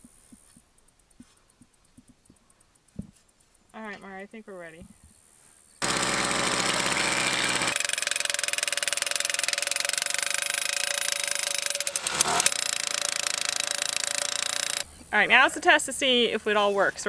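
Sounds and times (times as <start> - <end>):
post driver hammering steel post: 5.8 - 14.8.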